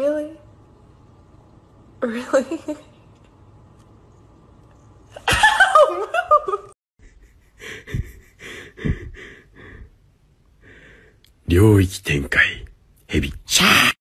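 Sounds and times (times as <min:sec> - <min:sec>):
breathy puffs: 0:07.1 - 0:10.0.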